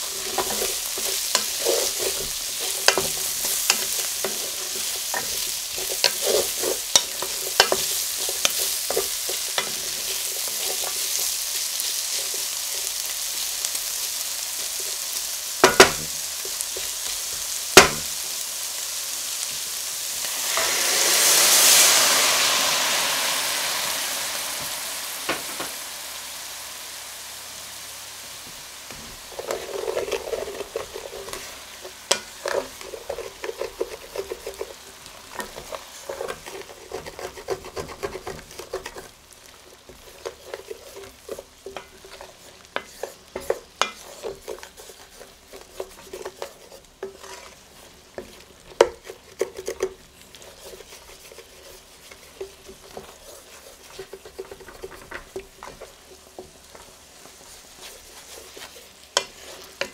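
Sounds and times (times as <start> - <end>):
wooden spatula scraping metal pan: 0.0 - 13.0, 15.6 - 18.2, 28.9 - 39.1, 39.8 - 59.9
wine sizzling in hot pan: 0.0 - 59.9.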